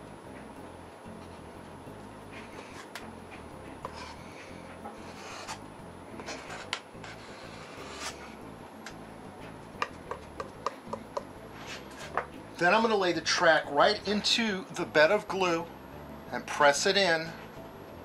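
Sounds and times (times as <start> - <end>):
knife scraping sealant on foam: 3.8 - 4.2, 5.0 - 5.6, 6.2 - 8.3, 11.5 - 12.2.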